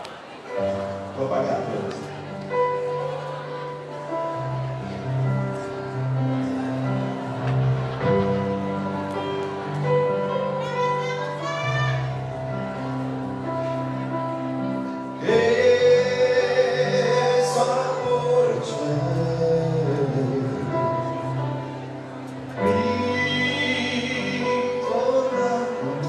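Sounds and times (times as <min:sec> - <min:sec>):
live band playing chords: 0:00.6 - 0:26.0
lead singer singing: 0:15.1 - 0:26.0.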